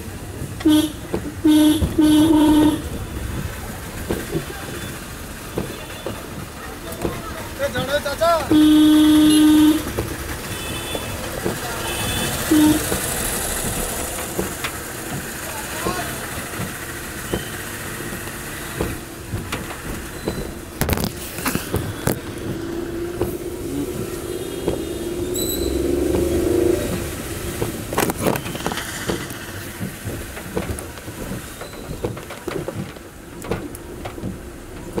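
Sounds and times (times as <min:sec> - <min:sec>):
road noise in rain: 0:00.0 - 0:35.0
car engine revving: 0:07.6 - 0:30.6
knocks and clicks: 0:12.2 - 0:35.0
short high beep: 0:25.3 - 0:25.8.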